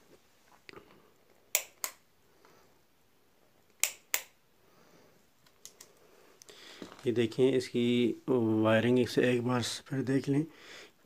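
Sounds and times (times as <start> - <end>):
float switch clicking: 3.8 - 4.3.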